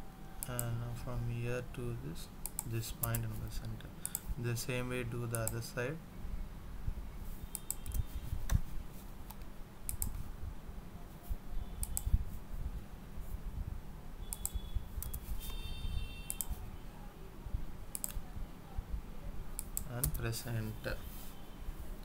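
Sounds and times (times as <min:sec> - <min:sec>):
computer mouse clicks: 0:02.4 - 0:03.2, 0:04.0 - 0:04.3, 0:07.5 - 0:08.7, 0:09.3 - 0:10.2, 0:11.8 - 0:12.2, 0:14.3 - 0:15.6, 0:16.3 - 0:16.6, 0:17.9 - 0:18.2, 0:19.6 - 0:20.2.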